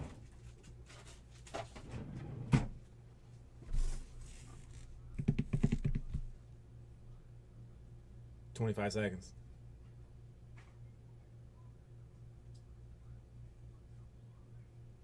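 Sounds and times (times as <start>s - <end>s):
rapid typing on a keyboard: 5.2s - 6.3s.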